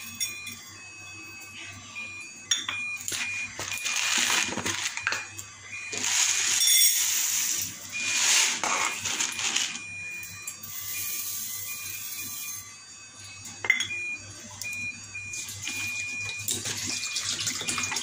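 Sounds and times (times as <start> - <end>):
lentils poured into glass bowl: 6.0 - 9.8.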